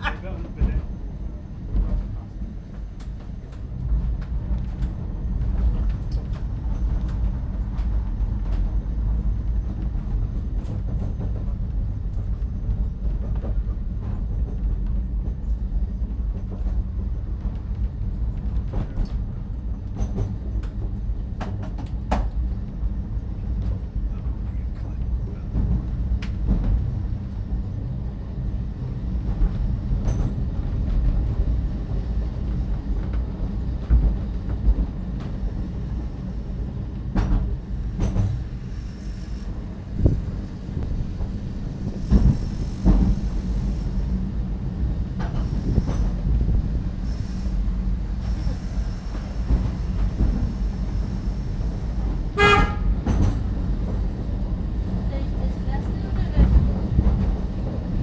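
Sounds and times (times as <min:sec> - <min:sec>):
tramcar rumbling on track: 0:00.0 - 0:58.0.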